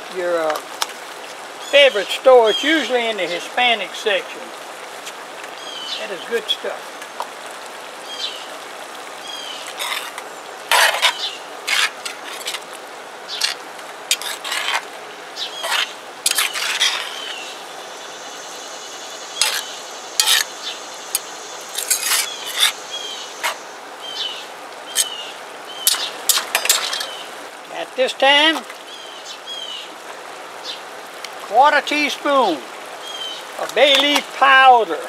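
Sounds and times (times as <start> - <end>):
spoon scraping and knocking pot: 9.8 - 12.6, 13.4 - 14.9, 15.6 - 17.3, 19.4 - 20.5, 21.8 - 22.8, 25.9 - 27.1
spoon stirring thick stew: 13.4 - 14.9, 15.6 - 17.4, 19.4 - 20.5, 21.1 - 22.8.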